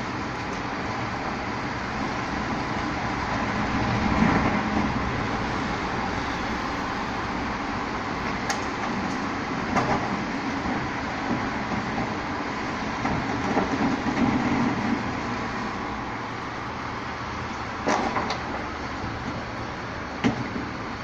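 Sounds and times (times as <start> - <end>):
garbage truck running: 0.0 - 21.0
knocks and clatters: 17.8 - 18.6.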